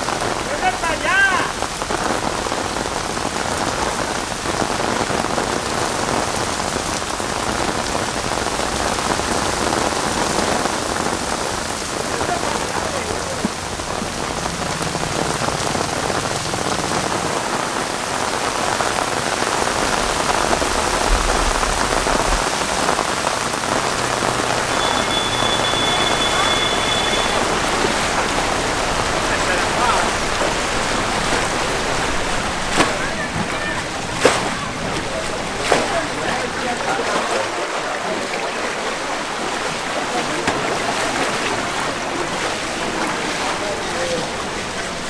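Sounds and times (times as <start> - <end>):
steady rain: 0.0 - 45.0
faint high steady tone: 24.7 - 27.6.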